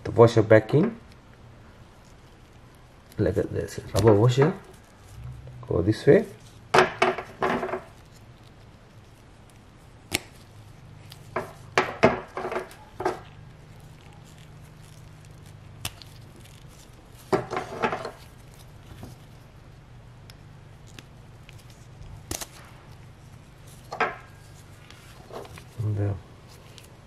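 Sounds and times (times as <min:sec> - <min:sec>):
low hum: 0:04.7 - 0:06.7.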